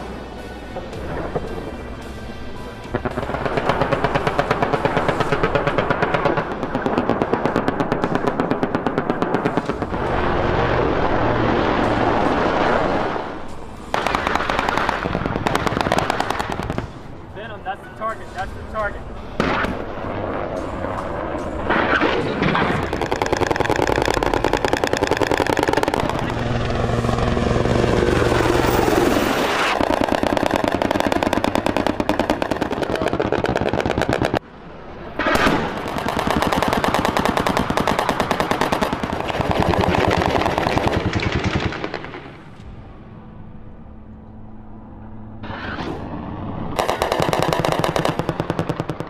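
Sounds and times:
gunfire: 3.0s - 13.3s, 13.9s - 17.1s, 19.4s - 26.9s, 29.6s - 34.4s, 35.2s - 42.5s, 46.8s - 49.0s
helicopter rotor chop: 20.4s - 34.4s, 35.3s - 42.5s.

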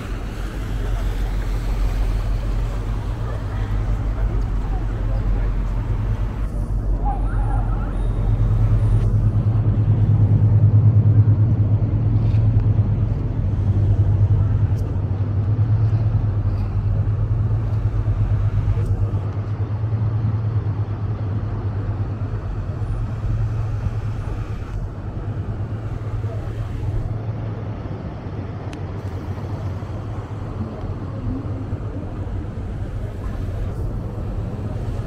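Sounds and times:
boat engine drone: 0.0s - 35.0s
water noise: 0.0s - 35.0s.

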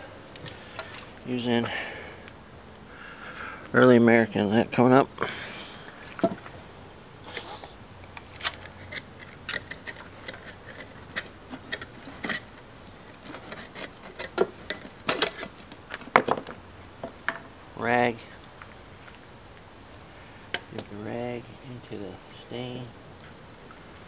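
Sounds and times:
metal cans and tools clicking on wood: 8.3s - 16.5s.

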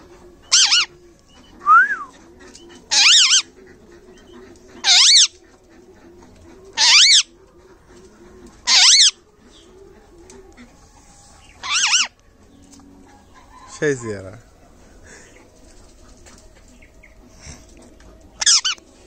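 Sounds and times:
parrot calling: 0.4s - 2.1s, 2.7s - 3.7s, 4.3s - 5.4s, 6.8s - 7.3s, 8.6s - 9.2s, 11.5s - 12.2s, 18.4s - 18.8s.

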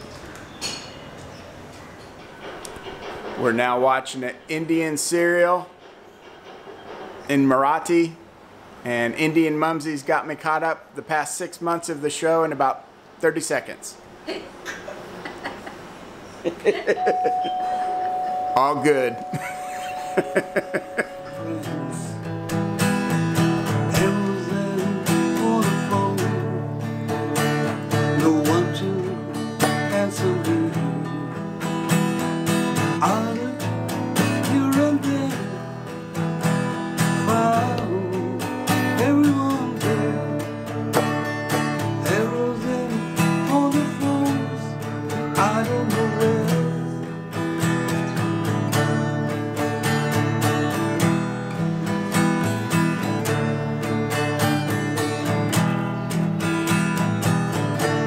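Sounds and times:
acoustic guitar strumming: 16.9s - 58.0s.

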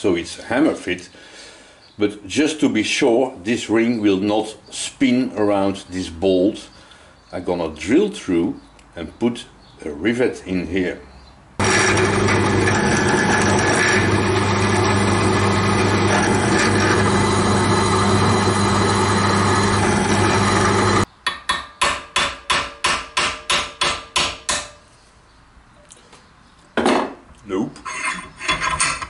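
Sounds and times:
drill press drilling metal: 11.6s - 21.1s.

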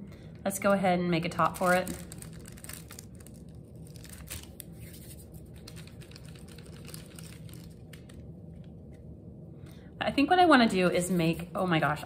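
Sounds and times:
low room hum: 0.0s - 12.0s
paper rustling and crinkling: 1.3s - 8.2s.

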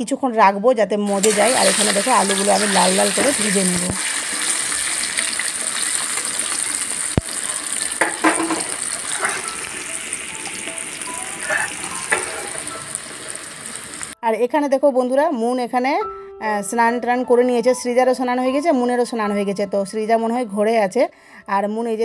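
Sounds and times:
potatoes deep-frying in hot oil: 1.1s - 14.2s.

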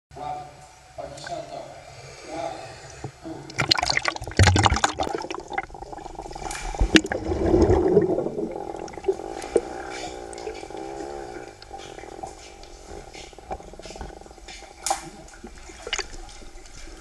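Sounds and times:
muffled underwater hum: 3.0s - 17.0s
pool water splashing and gurgling: 3.5s - 17.0s.

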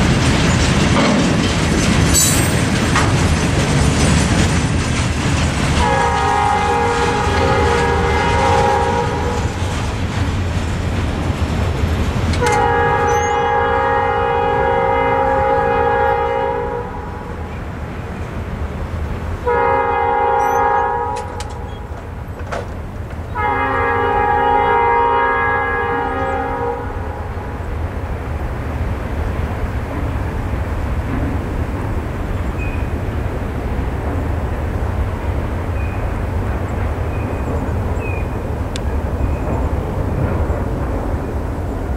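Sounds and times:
locomotive air horn blasts: 5.8s - 9.6s, 12.4s - 17.3s, 19.4s - 21.7s, 23.3s - 27.2s.

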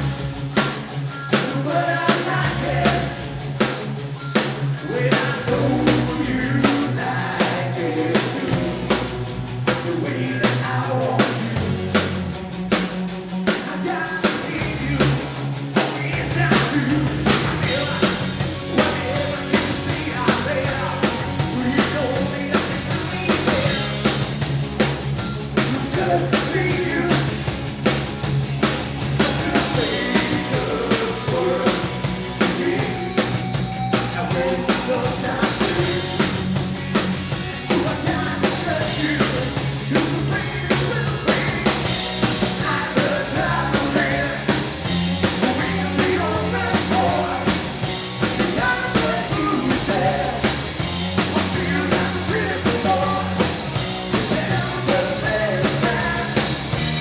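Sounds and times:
live rock band playing: 0.0s - 57.0s
person singing: 4.8s - 8.8s, 29.2s - 33.0s, 42.6s - 44.6s, 45.4s - 47.7s, 48.4s - 50.6s, 51.4s - 53.5s, 54.1s - 57.0s.

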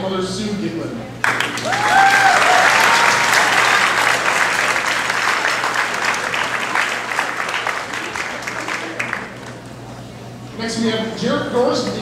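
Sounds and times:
people cheering: 1.2s - 9.6s
audience applause: 1.2s - 9.8s.

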